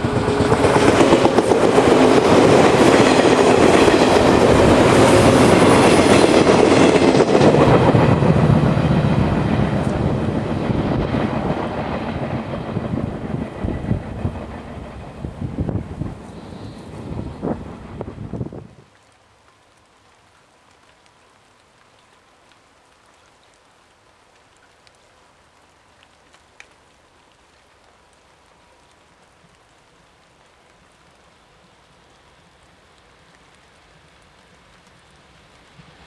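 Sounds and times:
electric train rushing past: 0.0s - 18.6s
rumble of approaching train: 0.0s - 18.8s, 32.4s - 36.0s
faint steady hiss: 13.2s - 36.0s.

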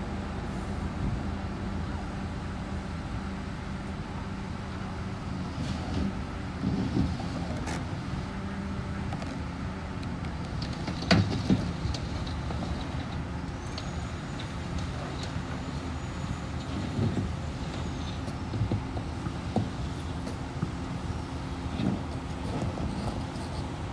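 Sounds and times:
diesel engine running: 0.0s - 23.9s.

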